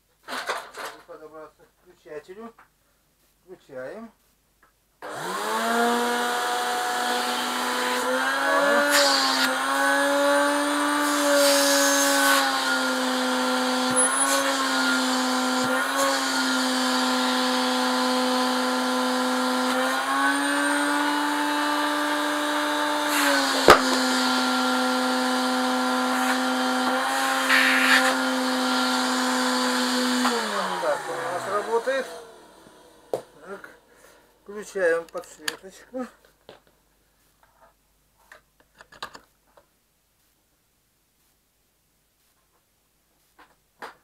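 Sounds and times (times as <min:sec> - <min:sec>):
vacuum cleaner motor whine: 0:05.0 - 0:33.9.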